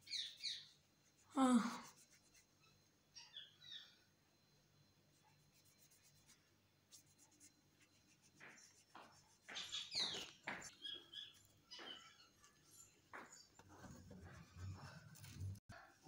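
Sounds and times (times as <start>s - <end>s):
small birds chirping: 0.0s - 0.9s, 2.5s - 4.1s, 8.4s - 14.5s.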